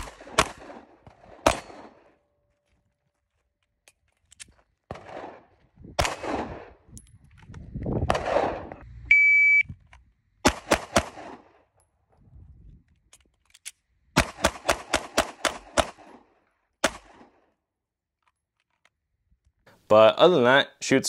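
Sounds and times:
pistol shots: 0:00.0 - 0:02.2, 0:04.9 - 0:06.8, 0:08.1 - 0:08.8, 0:10.4 - 0:11.6, 0:14.2 - 0:17.4
electronic beep: 0:09.1 - 0:09.7.

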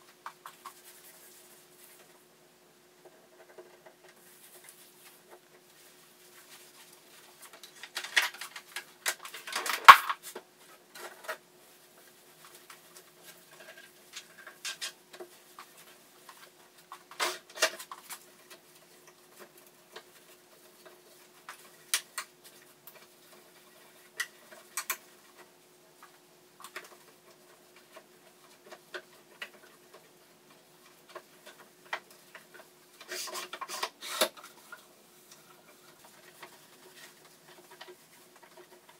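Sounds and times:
faint steady hum: 0:00.0 - 0:38.9
small items clicking and knocking: 0:07.2 - 0:11.4, 0:12.4 - 0:38.9.

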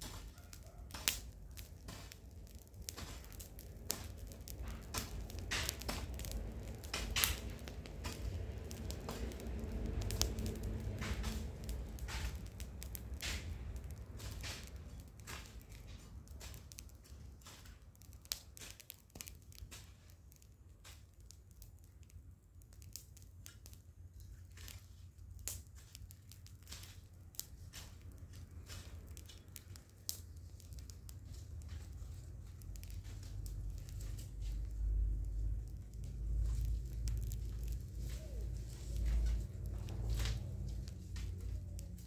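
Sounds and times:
steady low rumble: 0:01.0 - 0:42.0
hoe working soil: 0:01.8 - 0:12.5.

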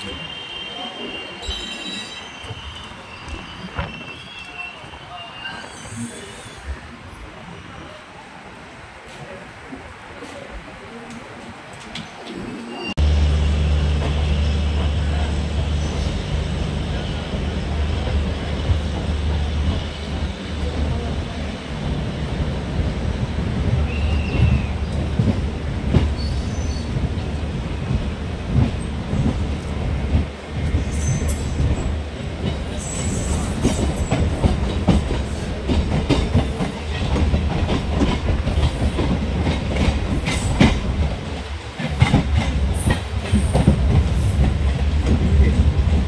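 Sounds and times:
train coaches rumbling past: 0:00.0 - 0:46.0.

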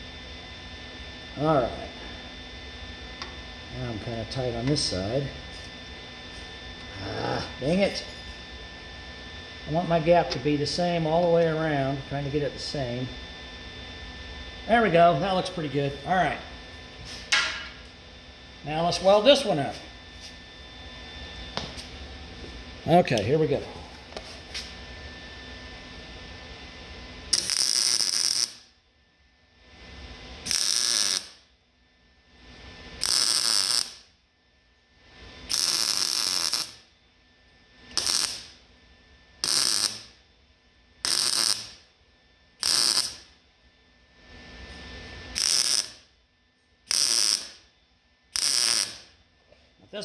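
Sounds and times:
welding arc crackling: 0:27.3 - 0:28.8, 0:30.4 - 0:31.5, 0:33.0 - 0:34.2, 0:35.4 - 0:36.9, 0:37.9 - 0:38.6, 0:39.4 - 0:40.2, 0:41.0 - 0:41.9, 0:42.6 - 0:43.4, 0:45.3 - 0:46.1, 0:46.9 - 0:47.7, 0:48.3 - 0:49.2.

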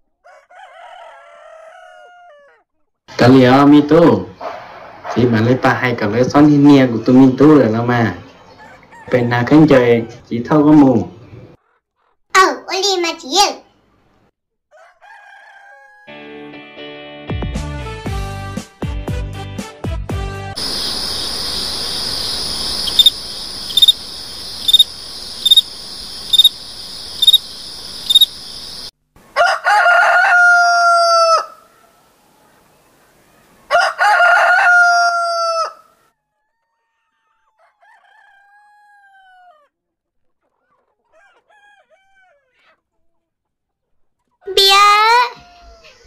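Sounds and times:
rooster crowing: 0:00.2 - 0:02.6, 0:14.7 - 0:16.2, 0:20.6 - 0:32.6, 0:33.7 - 0:35.9, 0:37.6 - 0:39.7, 0:41.4 - 0:42.4
steady high hiss: 0:20.6 - 0:28.9.

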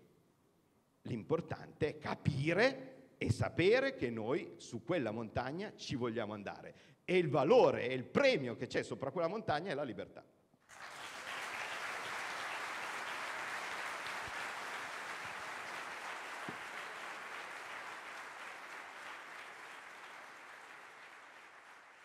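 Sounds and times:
audience applauding: 0:10.7 - 0:22.0.

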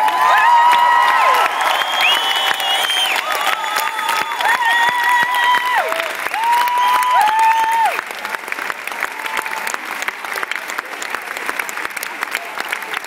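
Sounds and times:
high whoops: 0:00.0 - 0:08.3, 0:09.0 - 0:09.8
audience clapping and cheering: 0:00.0 - 0:13.0.

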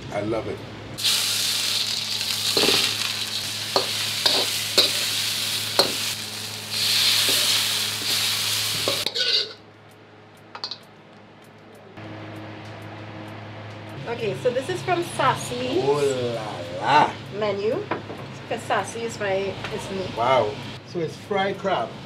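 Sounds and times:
food sizzling in wok: 0:01.0 - 0:09.6
utensils knocking on wok: 0:02.5 - 0:03.0, 0:03.7 - 0:05.1, 0:05.7 - 0:06.2, 0:07.2 - 0:09.6, 0:10.5 - 0:10.9.

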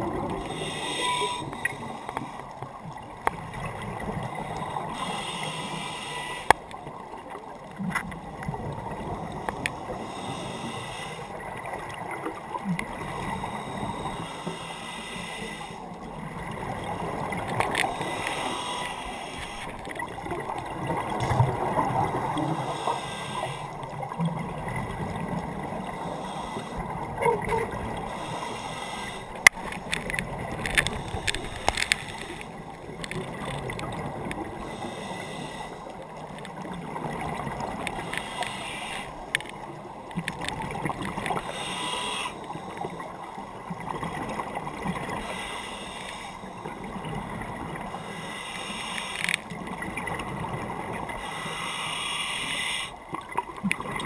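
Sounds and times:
low water noise: 0:00.0 - 0:54.0
exhaled bubbles rushing underwater: 0:19.4 - 0:26.0
sharp clicks: 0:29.4 - 0:33.3.

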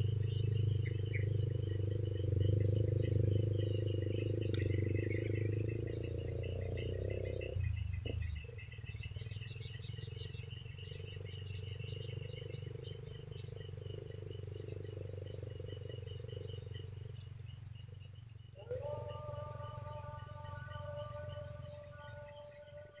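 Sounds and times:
steady low drone: 0:00.0 - 0:09.8
insects chirping trills: 0:00.0 - 0:23.0.

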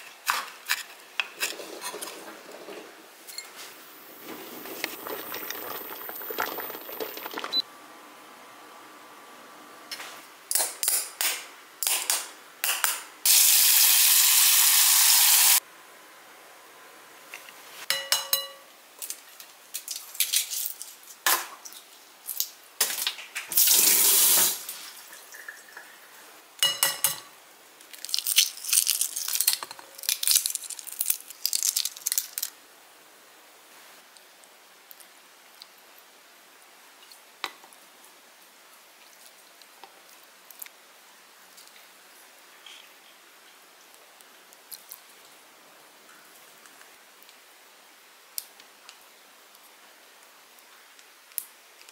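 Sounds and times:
eggshells crackling: 0:04.0 - 0:07.6, 0:27.9 - 0:32.5.

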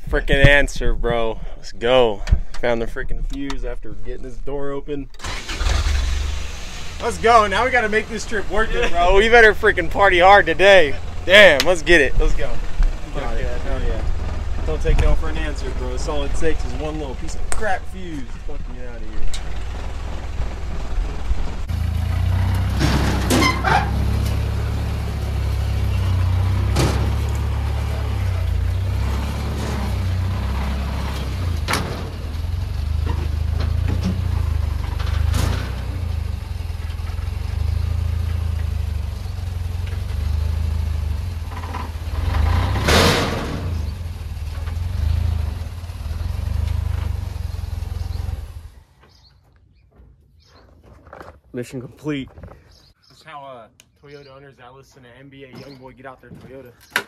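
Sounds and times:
engine droning under load: 0:05.2 - 0:49.1.

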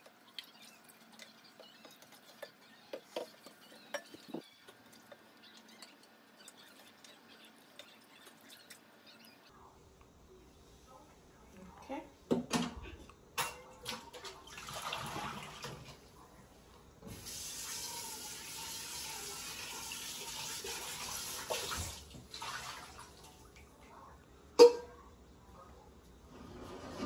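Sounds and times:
cookware knocking: 0:24.6 - 0:24.9.

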